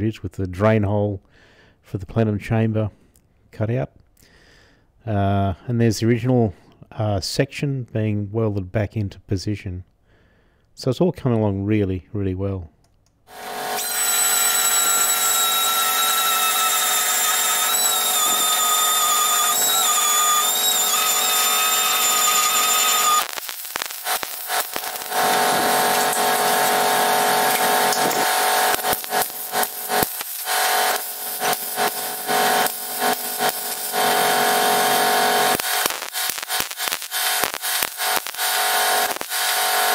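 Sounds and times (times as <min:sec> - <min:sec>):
power tool whining: 0:13.3 - 0:39.9
welder crackling: 0:13.3 - 0:39.9.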